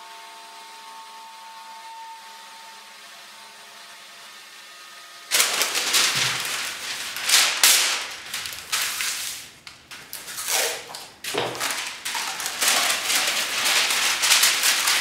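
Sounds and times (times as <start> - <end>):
paper crackling and rustling: 5.3 - 15.0.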